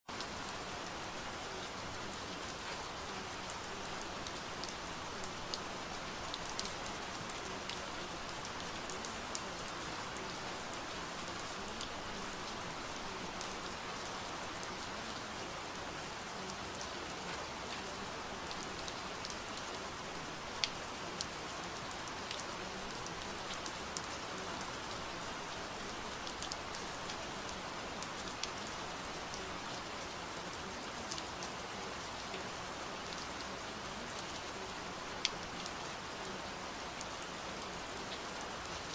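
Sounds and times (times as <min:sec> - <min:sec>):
steady rain: 0:00.0 - 0:38.9
raindrop ticks: 0:03.5 - 0:09.8, 0:25.8 - 0:29.8.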